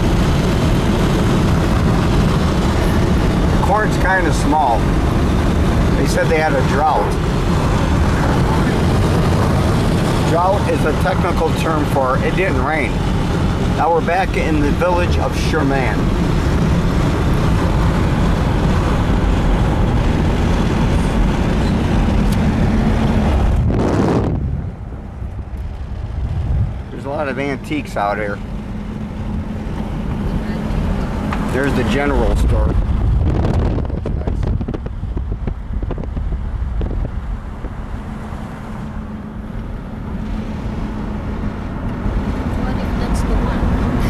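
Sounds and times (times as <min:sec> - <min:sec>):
car road noise from inside: 0:00.0 - 0:44.0
wind on microphone: 0:16.1 - 0:27.0, 0:32.2 - 0:38.2.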